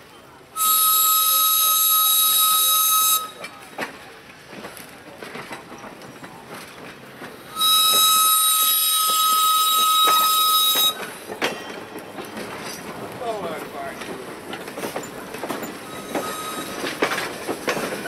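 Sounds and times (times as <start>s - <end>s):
train wheels clicking over rail joints: 0.2s - 18.0s
steam whistle blast: 0.6s - 3.5s, 7.5s - 11.0s, 15.9s - 16.9s.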